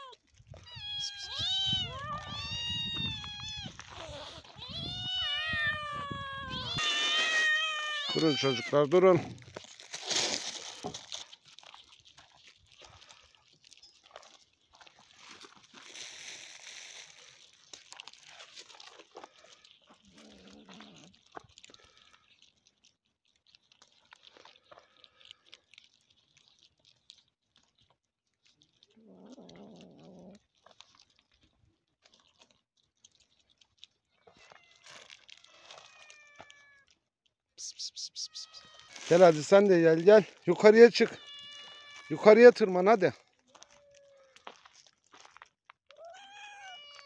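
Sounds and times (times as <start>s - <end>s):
cat meowing: 0.0s - 8.8s, 34.3s - 36.9s, 38.2s - 39.4s, 41.0s - 42.3s, 43.5s - 44.4s, 45.9s - 47.0s
cats crunching dry kibble: 0.0s - 47.0s.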